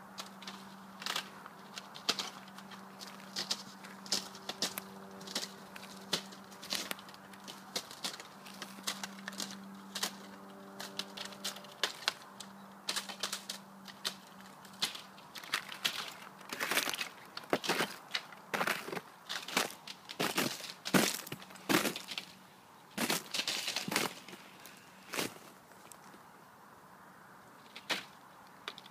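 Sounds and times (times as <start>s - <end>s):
thin ice clicking and cracking: 0.2s - 22.3s
ice crunching and cracking: 0.2s - 22.4s, 23.0s - 26.1s.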